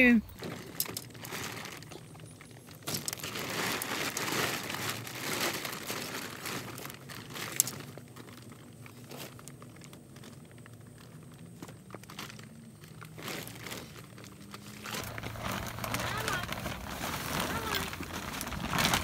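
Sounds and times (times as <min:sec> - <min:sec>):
plastic cover crinkling and rustling: 0:00.3 - 0:19.0.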